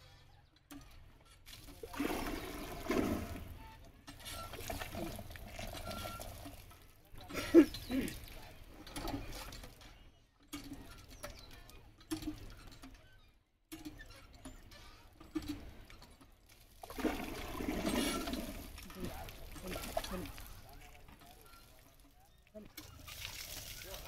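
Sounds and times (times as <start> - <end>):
water pouring and splashing: 1.5 - 7.0, 16.5 - 24.0.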